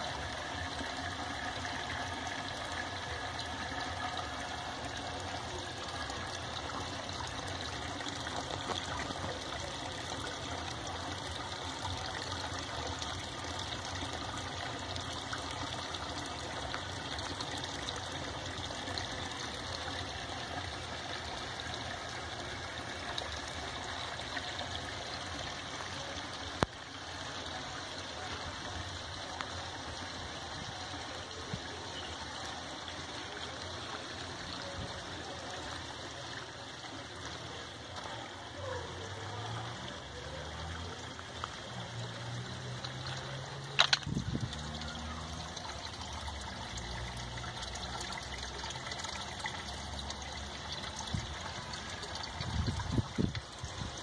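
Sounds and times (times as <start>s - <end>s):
water trickling into fish tank: 0.0s - 54.0s.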